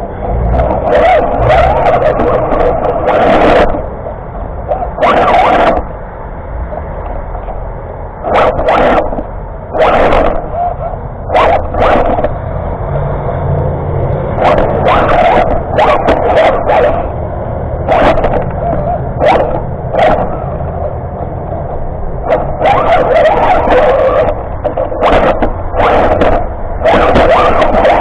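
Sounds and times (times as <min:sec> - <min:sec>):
radio-controlled car hum: 0:00.0 - 0:28.0
dog barking in short bursts: 0:08.3 - 0:12.3, 0:17.9 - 0:20.5, 0:22.3 - 0:28.0.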